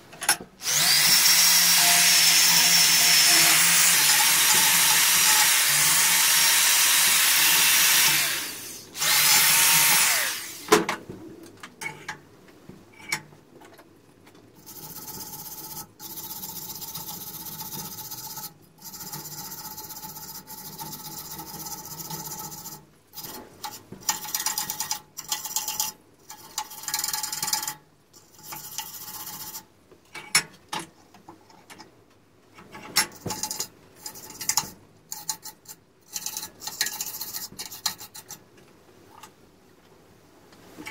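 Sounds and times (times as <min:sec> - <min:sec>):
power drill on steel blades: 0:00.6 - 0:10.7
wire brush scraping rust: 0:33.3 - 0:38.4.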